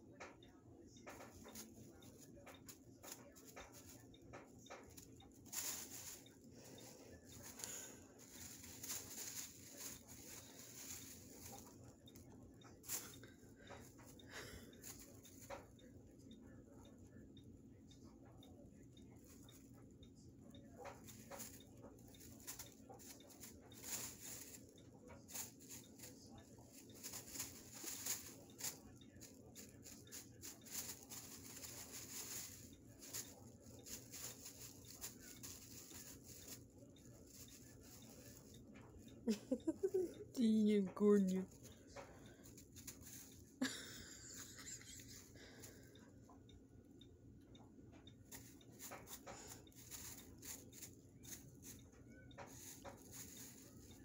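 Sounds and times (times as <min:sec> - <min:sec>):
plastic bag crinkling: 0:01.2 - 0:15.6, 0:20.8 - 0:40.6, 0:48.3 - 0:54.0.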